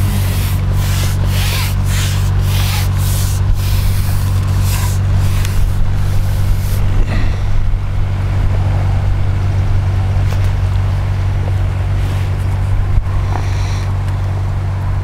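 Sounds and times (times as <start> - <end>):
pulsing hiss: 0.0 - 8.1, 13.0 - 14.0
diesel engine hum of boat: 0.0 - 15.0.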